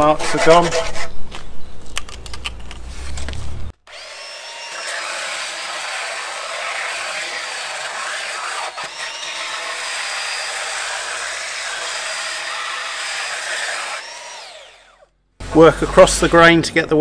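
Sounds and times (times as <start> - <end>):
belt sander sanding wood: 3.9 - 17.0.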